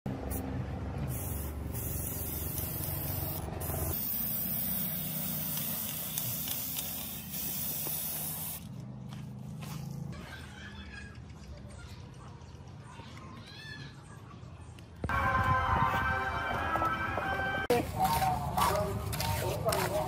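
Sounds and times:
spray paint can hissing: 1.1 - 8.7.

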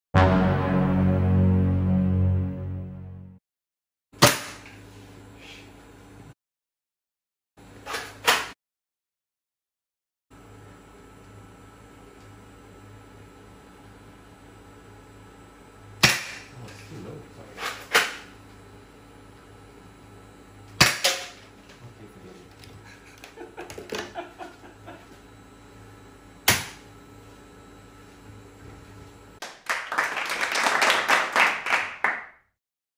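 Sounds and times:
people clapping: 29.4 - 32.5.

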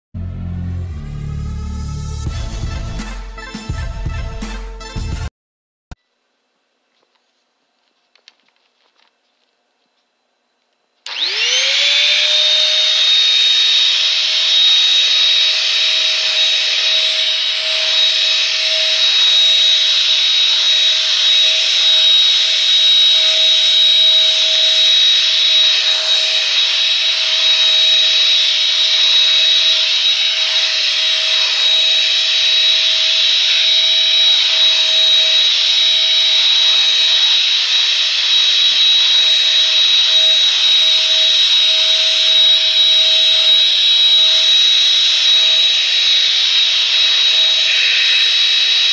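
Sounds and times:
vacuum cleaner motor whining: 11.0 - 48.9.

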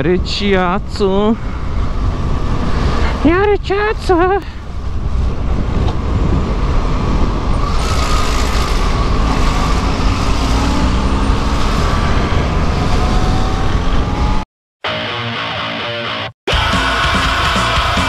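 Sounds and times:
wind rushing over microphone: 0.0 - 14.4.

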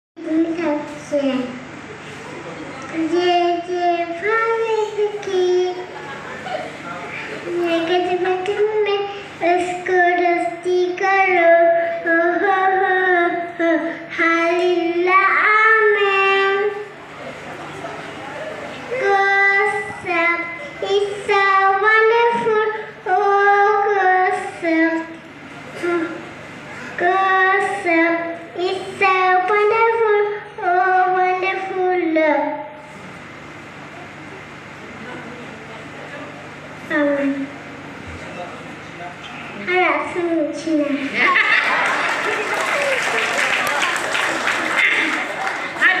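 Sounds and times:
girl singing into a microphone: 7.5 - 16.8, 19.0 - 25.1, 27.0 - 32.8.

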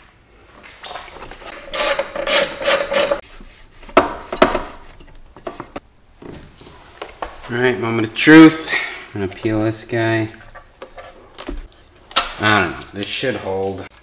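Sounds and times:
metal bracket rasping: 1.2 - 5.8
sharp knocks: 3.9 - 5.8.

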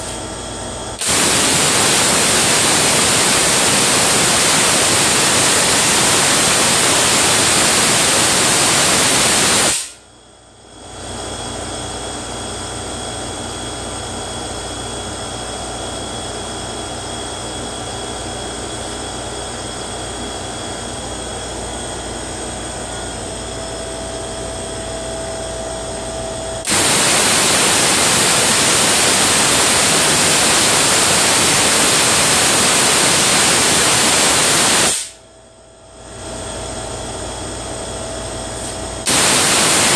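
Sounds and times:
high whine: 0.0 - 10.0, 22.3 - 35.3, 37.9 - 39.9
tesla coil sparks buzzing: 0.9 - 10.0, 26.6 - 35.2, 38.6 - 39.9.

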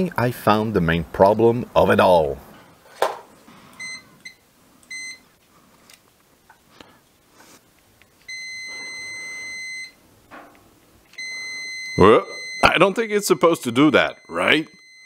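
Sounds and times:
multimeter beeps: 3.8 - 5.2, 8.2 - 10.0, 11.1 - 15.0.

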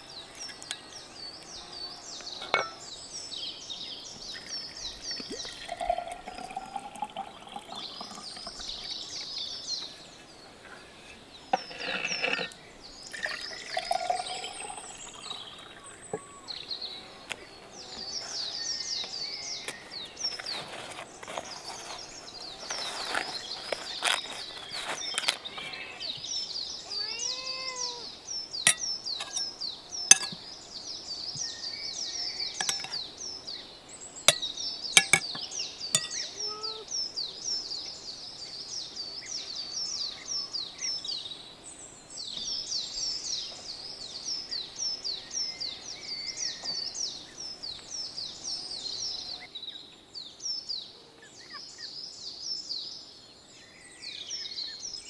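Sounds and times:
cutlery clinking on plates: 2.4 - 2.8, 28.7 - 29.5, 30.1 - 30.4, 32.6 - 33.0, 35.0 - 35.4, 36.0 - 36.3
flatbread rustling: 20.3 - 25.4.

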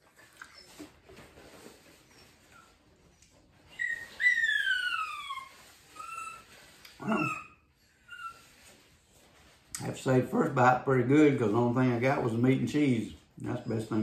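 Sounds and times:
dog whining: 0.1 - 1.1, 1.9 - 8.8.

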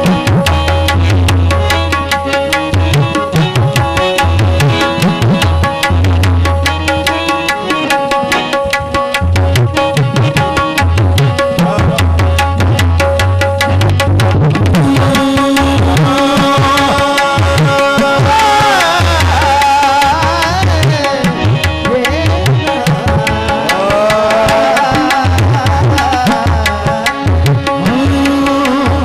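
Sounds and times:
fast hand-drum rhythm: 0.0 - 29.0
harmoniums playing melody: 0.0 - 29.0
person singing: 11.3 - 12.6, 14.7 - 29.0.

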